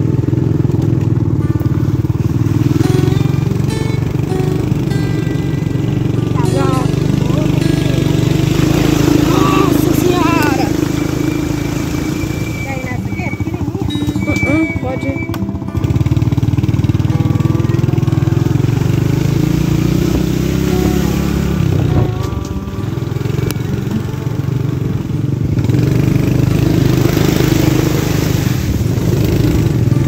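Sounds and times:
motorcycle engine running: 0.0s - 30.0s.

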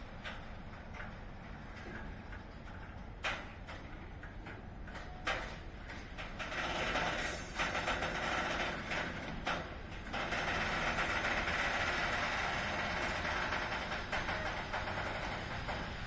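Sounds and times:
freight train wheels rattling: 0.0s - 16.0s.

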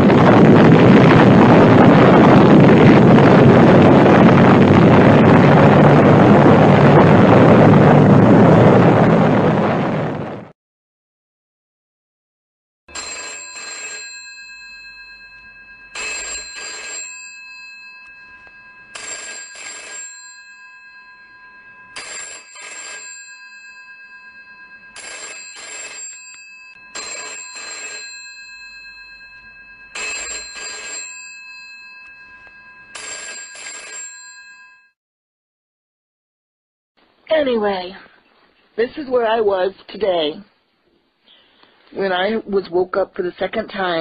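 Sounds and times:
telephone bell double ring: 12.9s - 35.0s.

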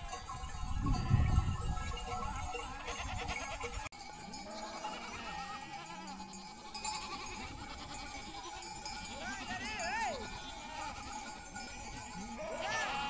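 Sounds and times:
sheep bleating: 2.6s - 13.0s.

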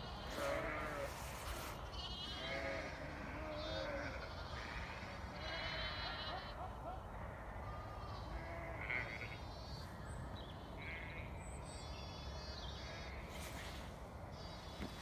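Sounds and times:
sheep bleating: 0.2s - 6.6s, 7.2s - 9.5s, 10.8s - 11.3s.

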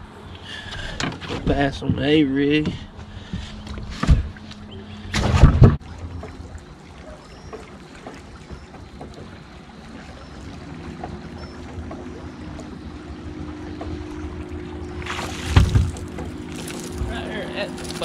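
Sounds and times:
water lapping at hull: 0.0s - 18.0s
fish splashing into water: 15.0s - 18.0s.

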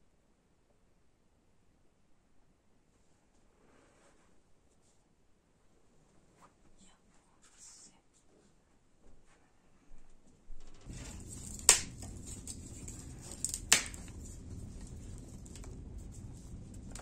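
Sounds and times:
crackling pops of burning sticks: 10.8s - 17.0s
rush of flames: 10.8s - 17.0s.

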